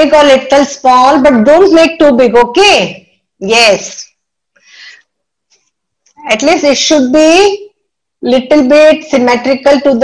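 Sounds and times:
person breathing: 0:04.6 - 0:05.1.

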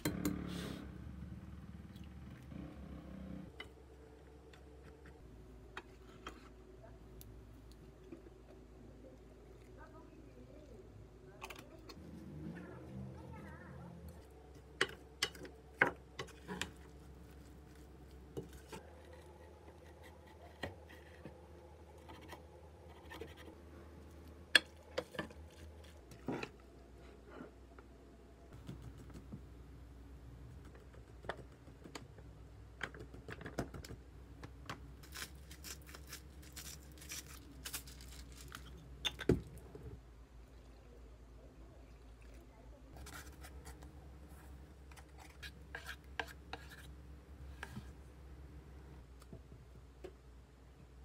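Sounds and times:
wooden spoon stirring in bowl: 0:42.9 - 0:46.9.

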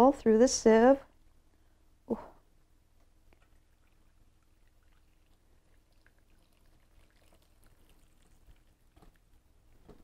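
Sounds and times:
small drips: 0:02.9 - 0:10.0
liquid trickling through sieve: 0:03.0 - 0:10.0.

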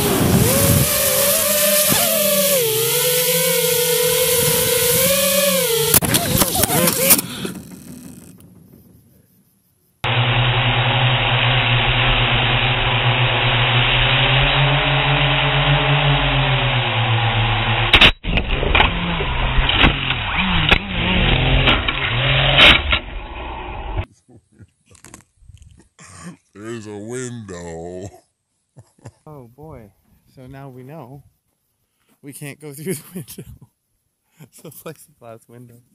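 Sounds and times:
drone motors whining: 0:00.0 - 0:09.0, 0:10.0 - 0:24.0
drone hitting window: 0:10.0 - 0:23.9.

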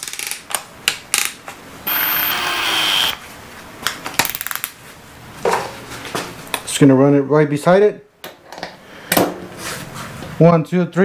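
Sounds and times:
drill motor running: 0:01.8 - 0:03.2
drill chuck ratcheting clicks: 0:01.9 - 0:03.2.

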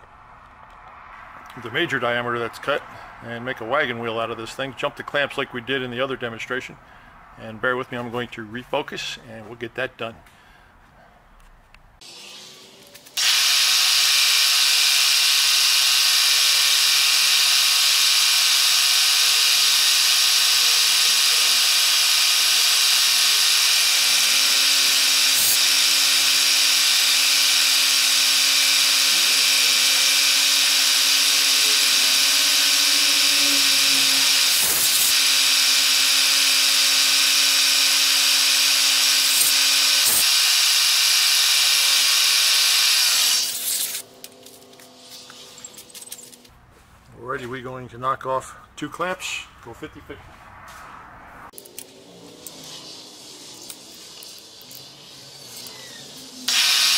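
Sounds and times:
milling machine whine: 0:13.2 - 0:45.9, 0:52.4 - 0:56.9.

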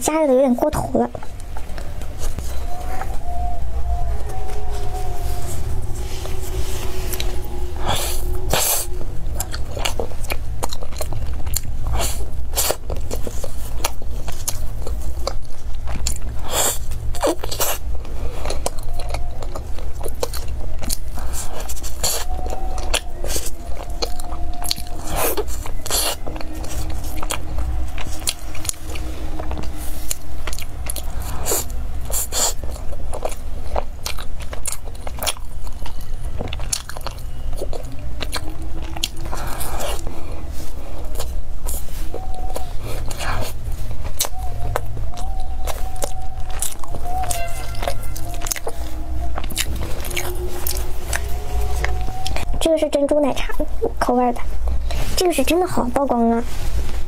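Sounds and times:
steady low hum: 0:00.0 - 0:57.0
biting and chewing pastry: 0:01.1 - 0:56.0.

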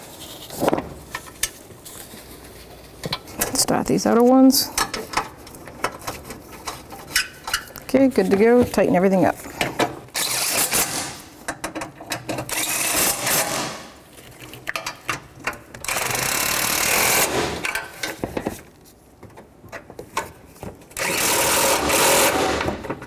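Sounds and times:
cordless power tool driving bolts: 0:12.2 - 0:13.9, 0:15.8 - 0:17.9, 0:21.0 - 0:23.0.

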